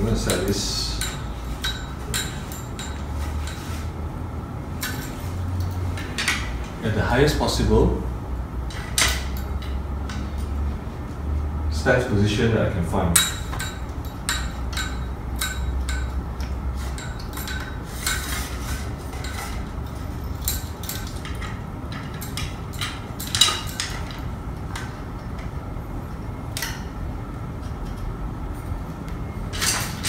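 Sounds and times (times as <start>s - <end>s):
metal clicks and clinks from stand: 0.2s - 3.7s, 4.8s - 6.5s, 8.7s - 10.6s, 13.2s - 18.5s, 19.1s - 25.5s, 27.6s - 30.0s.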